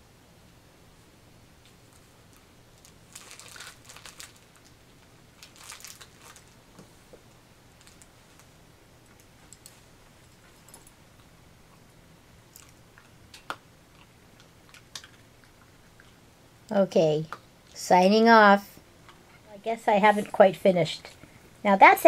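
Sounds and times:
dog crunching chew treat: 5.4s - 6.6s, 12.5s - 16.2s.

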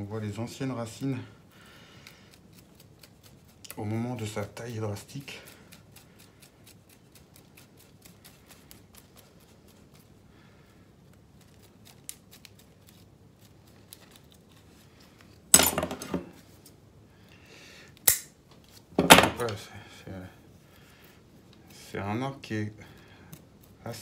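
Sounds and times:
stick scratching through soil: 2.3s - 10.2s, 11.0s - 15.5s.

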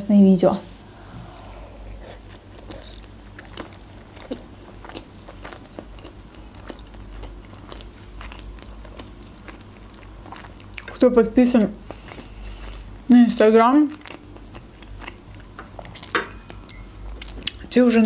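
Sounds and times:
person chewing with mouth clicks: 1.1s - 11.0s, 13.9s - 16.1s, 17.1s - 17.8s.

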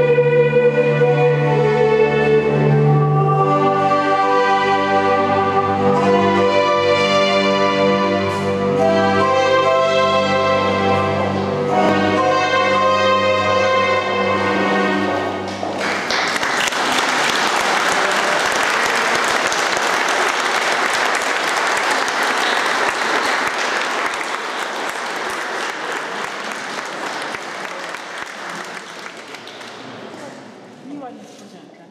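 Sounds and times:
audience applauding: 15.4s - 30.4s.

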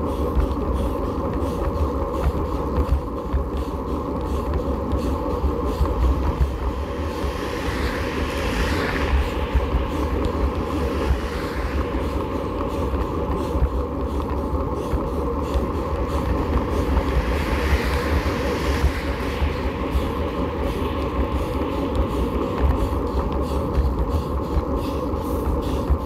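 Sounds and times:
road rumble: 0.0s - 26.0s
wind buffeting microphone: 0.0s - 26.0s
car passing with tyre hiss: 6.7s - 13.0s, 16.7s - 22.6s.

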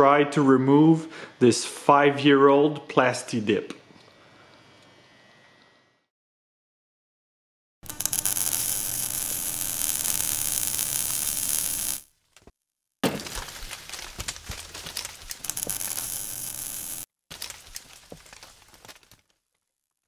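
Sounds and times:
electric buzz with crackling static: 7.8s - 12.1s, 15.3s - 17.1s
crackling and clicks: 7.8s - 12.5s, 13.3s - 19.7s.

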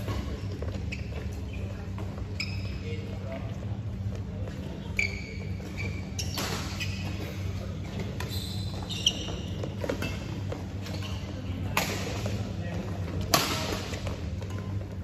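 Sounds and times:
shoes squeaking on court: 0.0s - 15.0s
sports hall hum: 0.0s - 15.0s
racket hitting shuttlecock: 6.3s - 6.8s, 11.7s - 12.4s, 13.2s - 14.7s.

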